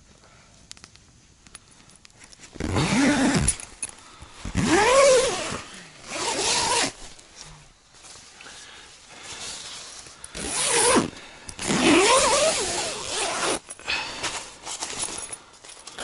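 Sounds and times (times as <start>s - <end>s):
light handling clicks: 0.6s - 2.5s
tent zipper pulled: 2.4s - 3.8s, 4.4s - 7.2s, 9.2s - 15.4s.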